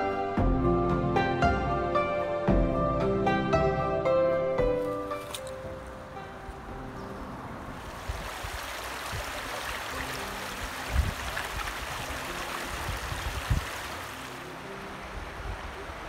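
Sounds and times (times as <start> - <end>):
water rushing over rocks: 7.8 - 16.0.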